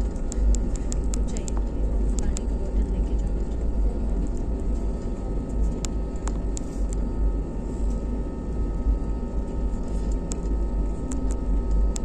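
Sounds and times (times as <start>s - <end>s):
faint steady whine: 0.0s - 12.0s
jet engines rumbling: 0.0s - 12.0s.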